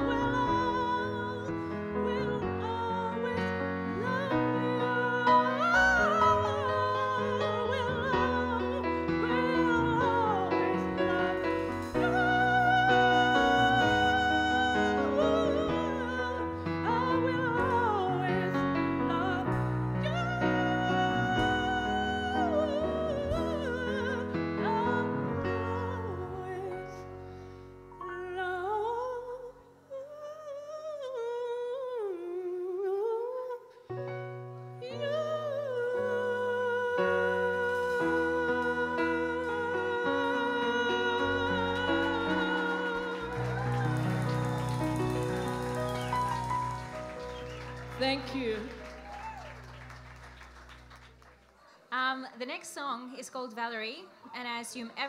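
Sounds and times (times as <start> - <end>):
person singing: 0.0 - 27.1, 34.8 - 47.3
bass: 0.0 - 29.6, 35.1 - 51.3
keyboard chords: 37.3 - 51.2.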